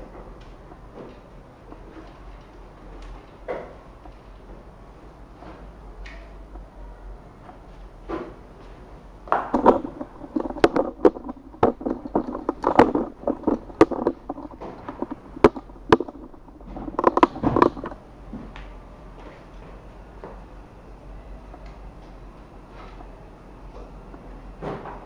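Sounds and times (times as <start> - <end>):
tripod handling clicks and knocks: 9.5 - 18.0.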